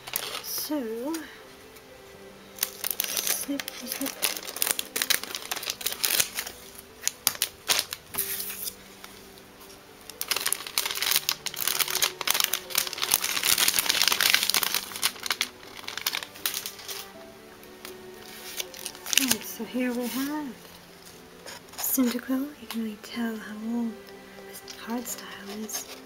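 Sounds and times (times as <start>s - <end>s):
plastic wrapper crinkling: 0.0s - 1.3s, 2.5s - 9.4s, 10.0s - 22.8s, 24.4s - 26.0s
scissors snipping plastic: 24.7s - 26.0s.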